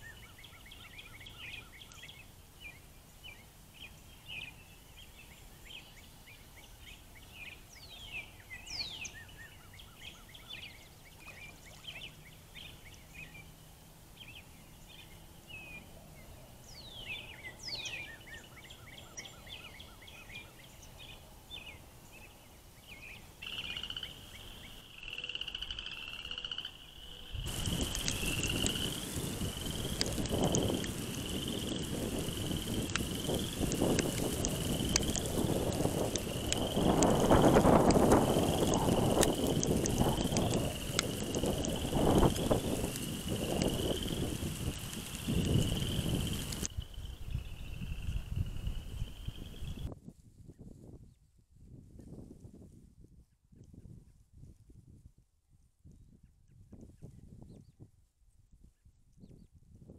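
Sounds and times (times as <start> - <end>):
frogs calling: 23.4 - 49.9.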